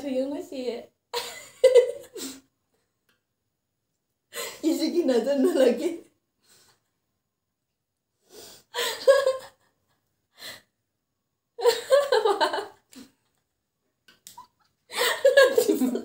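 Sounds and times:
women laughing: 0:01.2 - 0:02.3, 0:08.8 - 0:09.7, 0:11.6 - 0:12.8, 0:14.9 - 0:16.0.

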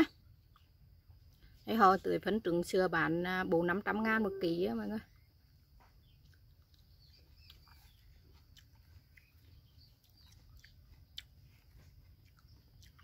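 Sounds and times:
faint chewing: 0:00.1 - 0:01.7, 0:05.0 - 0:13.0
faint bird chirps: 0:03.3 - 0:13.0.

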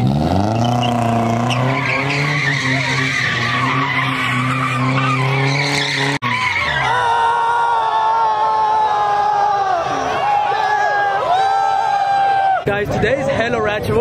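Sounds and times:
car engine at high revs: 0:00.0 - 0:06.3
tires screeching on asphalt: 0:00.0 - 0:12.5.

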